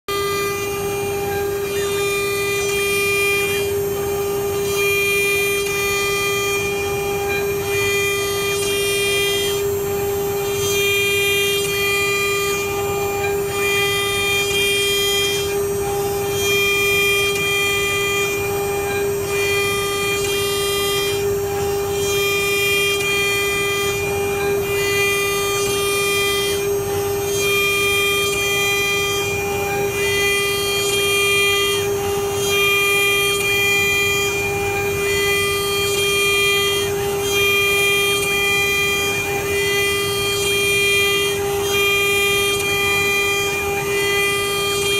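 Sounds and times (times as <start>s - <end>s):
spindle whining: 0.1s - 44.9s.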